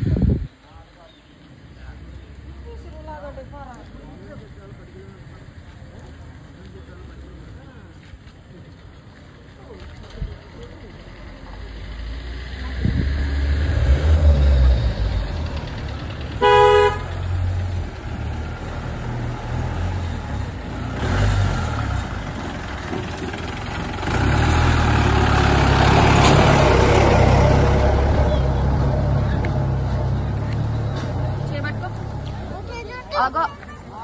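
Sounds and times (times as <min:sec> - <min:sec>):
motor vehicle rumble: 0:00.0 - 0:34.0
vehicle horn honk: 0:16.4 - 0:17.2.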